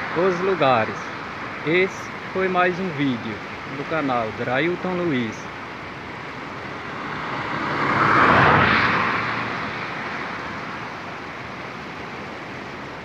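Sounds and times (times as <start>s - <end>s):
river rapids rushing: 0.0s - 13.0s
vehicle passing by: 6.1s - 12.4s.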